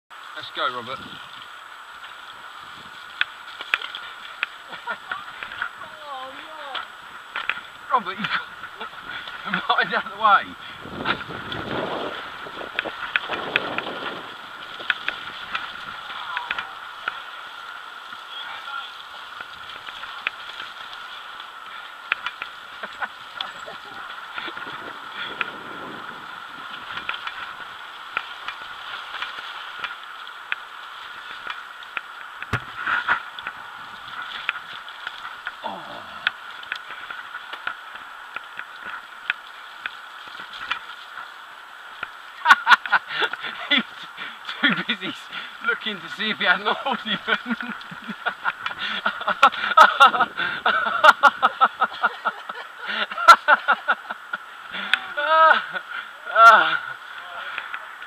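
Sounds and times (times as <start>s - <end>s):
bike clicking and rattling: 1.2s - 5.8s, 6.7s - 18.3s, 19.0s - 35.6s, 36.3s - 45.5s, 46.6s - 52.0s
person laughing: 4.6s - 5.3s, 42.4s - 44.8s, 46.6s - 56.9s
tyres hissing and rushing air: 6.9s - 19.7s, 24.2s - 34.3s.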